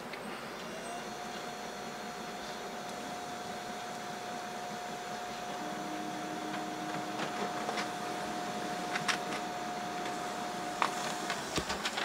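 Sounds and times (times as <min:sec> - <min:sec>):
printer low hum: 0:00.0 - 0:12.0
printer whine: 0:00.0 - 0:12.0
printer sharp clicks: 0:06.4 - 0:12.0.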